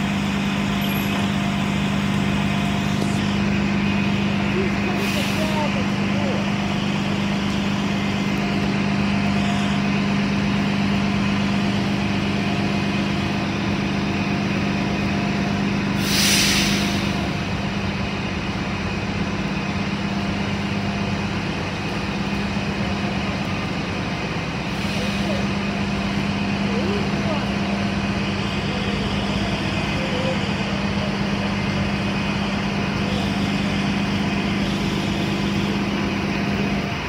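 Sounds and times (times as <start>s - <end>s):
bus engines idling: 0.0s - 37.0s
air brakes hissing: 4.9s - 5.8s, 15.9s - 17.4s.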